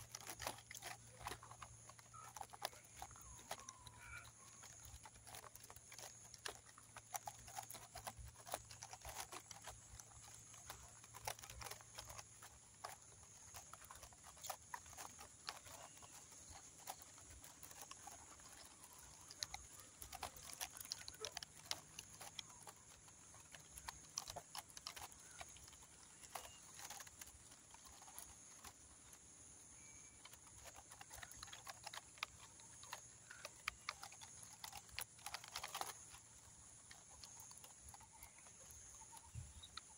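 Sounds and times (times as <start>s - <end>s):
faint ticks and crackles: 0.0s - 39.9s.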